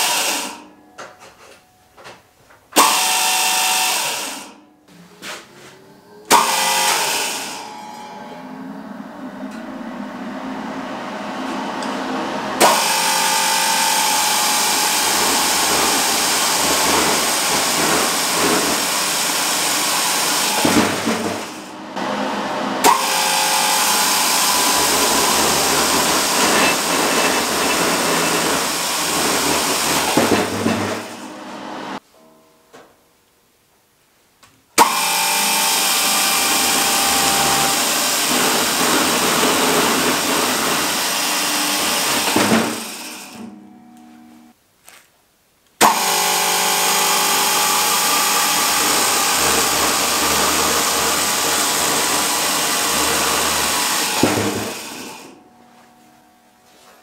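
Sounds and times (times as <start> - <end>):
chainsaw sawing through log: 12.6 - 21.5, 22.8 - 31.2, 34.9 - 43.4, 45.9 - 55.3.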